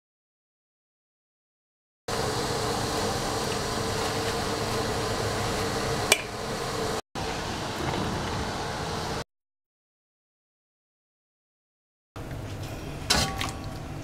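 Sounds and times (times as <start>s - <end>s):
fan-like hum: 2.1s - 9.2s, 12.2s - 14.0s
water boiling in wok: 2.1s - 9.2s.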